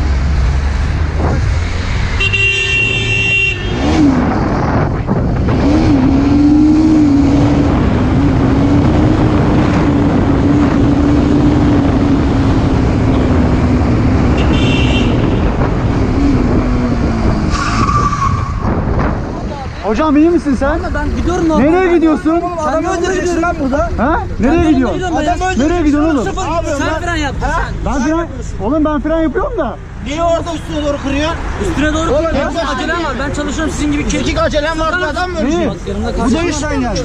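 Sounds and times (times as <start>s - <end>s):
wind and road noise: 0.0s - 37.0s
horn honking: 2.0s - 4.3s, 14.2s - 15.9s.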